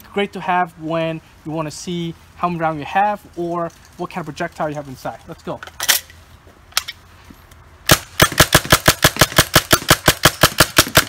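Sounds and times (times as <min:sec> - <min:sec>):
paintball gun firing rapidly: 0:07.9 - 0:11.0.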